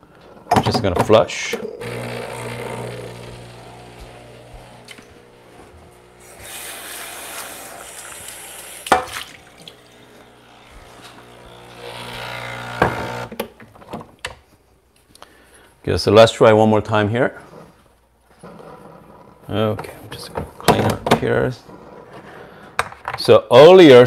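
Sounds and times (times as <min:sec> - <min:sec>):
espresso machine pump humming: 0:01.8 - 0:08.8, 0:09.4 - 0:13.3
water hissing into drip tray: 0:06.2 - 0:10.0.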